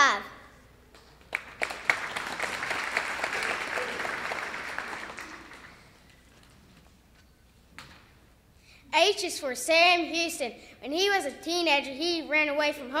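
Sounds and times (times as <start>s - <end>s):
audience applauding: 1.2s - 6.1s.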